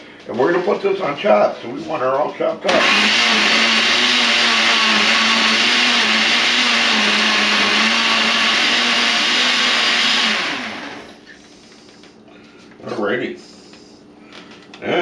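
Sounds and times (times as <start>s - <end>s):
blender running and winding down: 2.6s - 11.2s.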